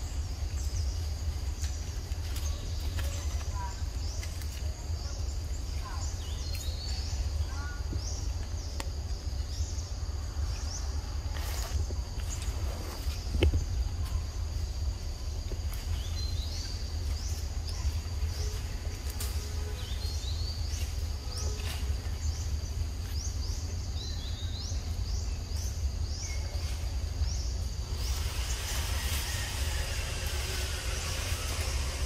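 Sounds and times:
high insect hum: 0.0 - 32.0
chirps rising in pitch: 23.0 - 32.0.

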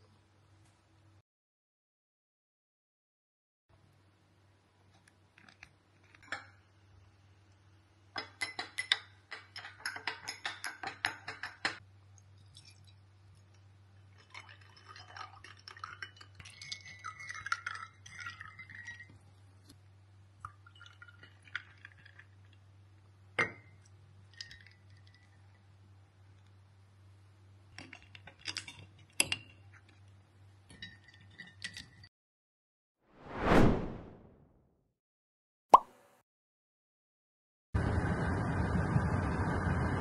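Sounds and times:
glass cup clinking against mug: 8.2 - 11.8, 23.4 - 23.8
ice clinking into mugs: 8.2 - 11.8, 14.2 - 19.3, 20.4 - 22.4, 23.4 - 25.4
pouring: 12.4 - 13.0, 14.1 - 19.1, 20.4 - 22.7.

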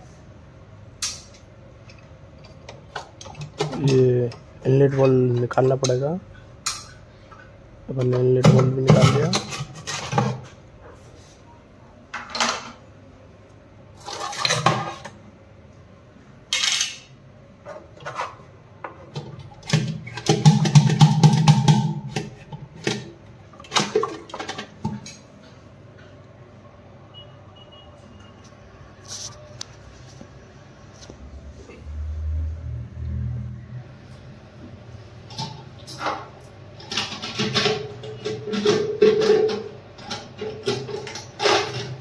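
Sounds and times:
plastic cistern parts knocking: 19.1 - 25.1, 36.8 - 42.0.

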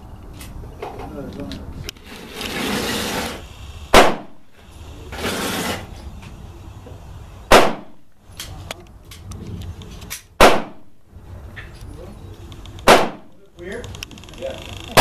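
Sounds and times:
pistol shots: 3.9 - 4.4, 7.5 - 8.0, 10.4 - 10.9, 12.8 - 13.3.

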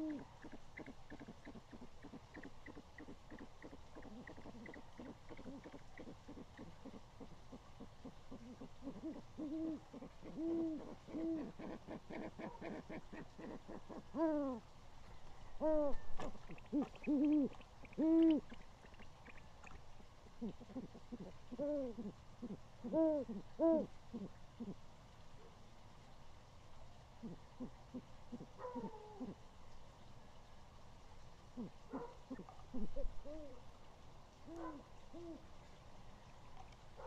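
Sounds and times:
owls hooting: 8.3 - 14.6, 15.6 - 18.6, 20.4 - 24.8.

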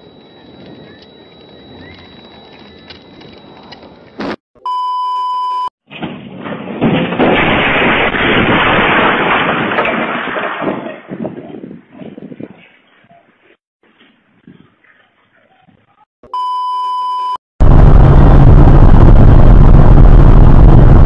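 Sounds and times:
vehicle crashing through fence: 5.9 - 11.1.

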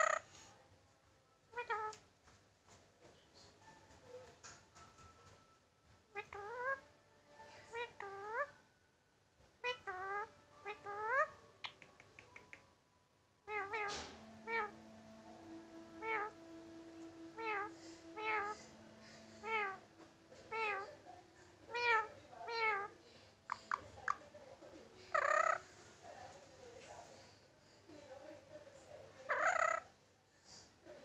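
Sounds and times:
parakeet making meow calls: 0.0 - 0.3, 1.5 - 2.0, 6.2 - 6.8, 9.6 - 11.8, 13.5 - 19.9, 20.5 - 20.8, 21.7 - 22.9, 25.1 - 25.6, 29.3 - 29.9.

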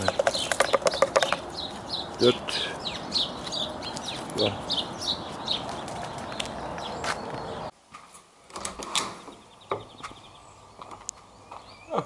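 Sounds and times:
rustle of someone walking: 1.6 - 8.4.

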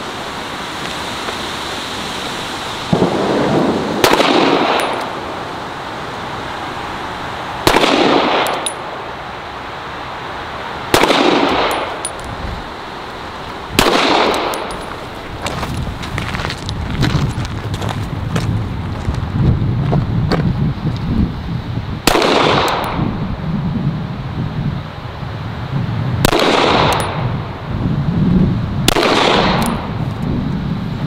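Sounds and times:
handgun shots with echo: 7.7 - 8.8, 11.0 - 12.1, 13.8 - 14.8.

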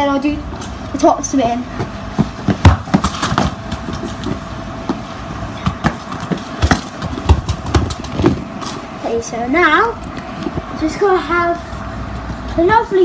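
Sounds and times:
faint steady hum: 0.0 - 13.0
football kicked on stone paving: 1.7 - 8.6
ball taps and bounces: 5.6 - 8.4.

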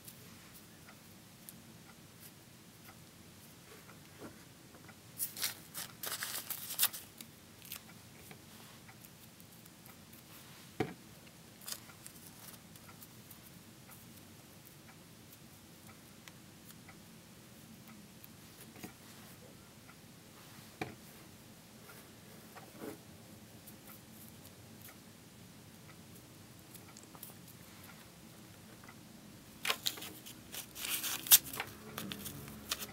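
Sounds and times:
thin paper crinkling: 5.2 - 7.8, 29.6 - 32.9.

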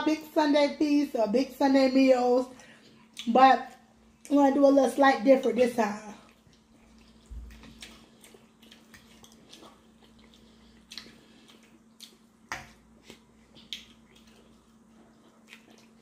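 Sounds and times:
low steady hum: 0.0 - 16.0
soft chewing and mouth smacks: 2.5 - 4.4, 6.2 - 16.0.

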